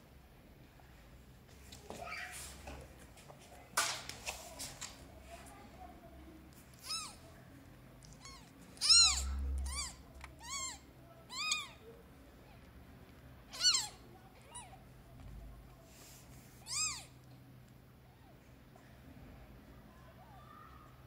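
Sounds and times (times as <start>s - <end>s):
kittens mewing: 6.8s - 7.2s, 8.0s - 11.9s, 13.5s - 14.8s, 16.6s - 17.2s.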